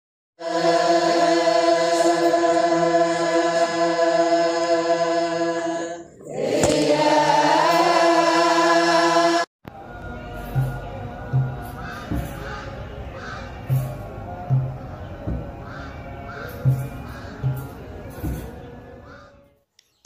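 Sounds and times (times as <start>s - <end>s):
held choral chord: 0.4s - 19.1s.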